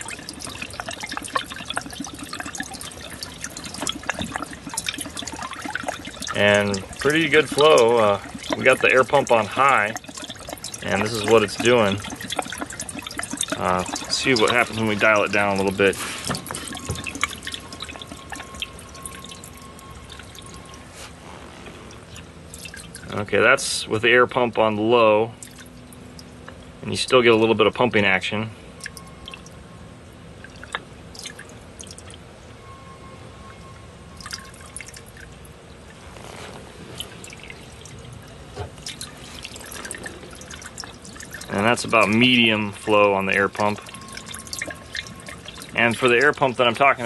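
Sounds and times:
water trickling and dripping: 0.0s - 47.0s.

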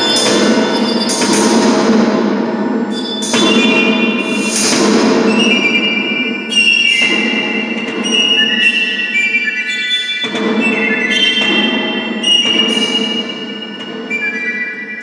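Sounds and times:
held high tones: 0.0s - 1.6s
dense noisy low layer: 0.0s - 8.0s.

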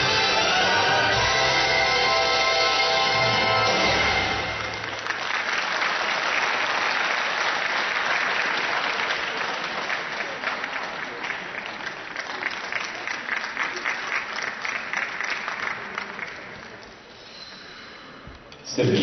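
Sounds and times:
music: 0.0s - 5.0s
crowd applauding: 2.8s - 17.1s.

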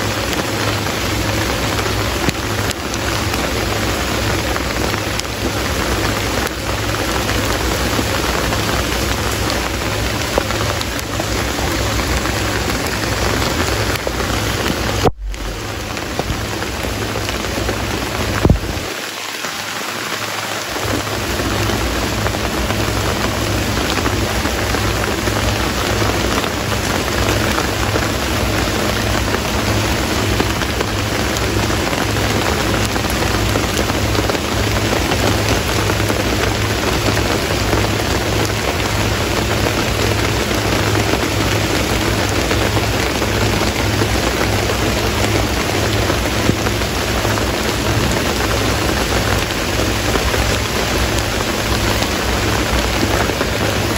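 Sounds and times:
steady rain falling: 0.0s - 53.9s.

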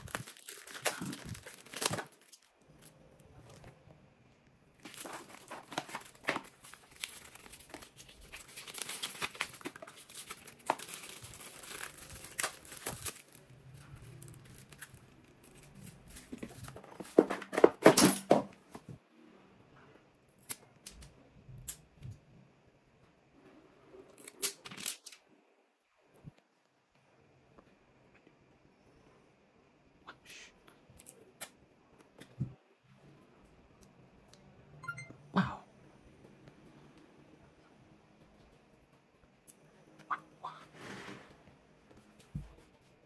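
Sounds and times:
packaging wrap crinkling and tearing: 0.0s - 3.6s, 4.8s - 17.2s.

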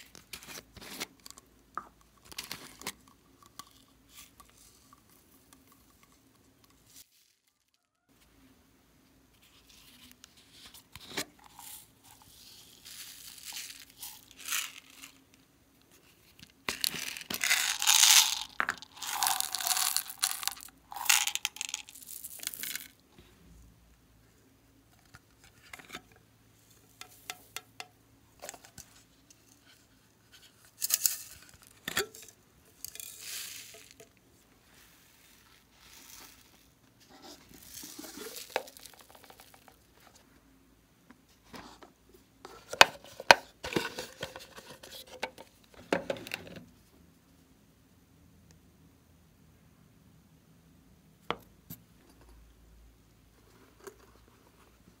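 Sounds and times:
plastic beads poured rattling: 11.5s - 15.2s, 16.7s - 23.0s, 32.8s - 34.0s, 37.5s - 39.9s.

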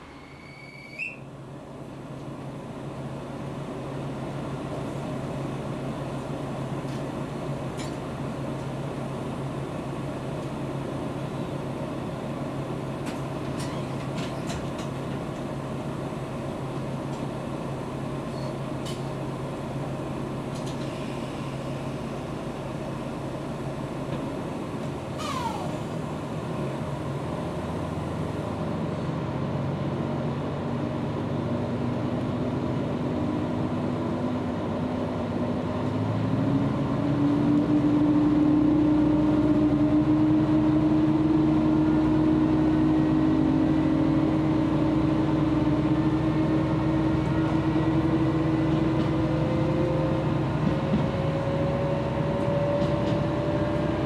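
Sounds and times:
short falling squeal: 0.0s - 1.3s, 25.2s - 25.9s
diesel engine idling: 19.2s - 30.0s.

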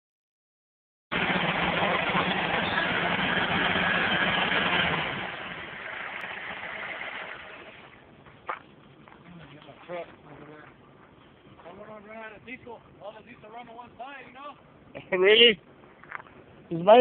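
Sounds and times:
tractor engine running: 1.1s - 8.2s.

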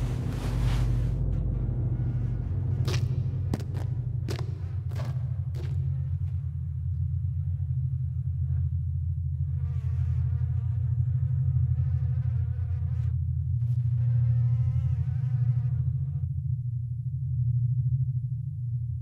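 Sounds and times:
steady low rumble: 0.0s - 9.8s
fly buzzing: 9.5s - 16.2s.

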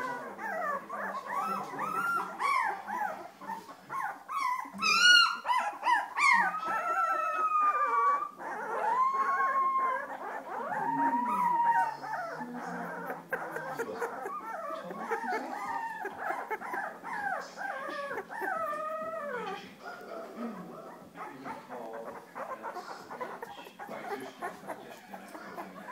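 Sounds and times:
puppies whining and howling: 0.0s - 25.9s.

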